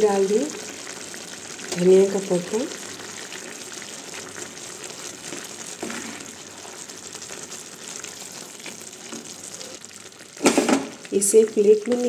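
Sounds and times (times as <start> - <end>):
noodles sizzling and bubbling in pan: 0.0 - 12.0
wooden spatula scraping and knocking: 5.3 - 6.4.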